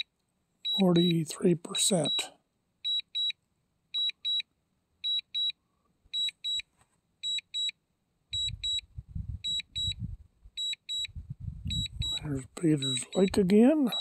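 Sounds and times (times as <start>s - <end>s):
high double alarm beeps: 0.7s - 2.3s, 4.0s - 4.4s, 5.1s - 5.5s, 6.2s - 6.6s, 7.2s - 7.7s, 8.3s - 10.0s, 10.6s - 14.0s.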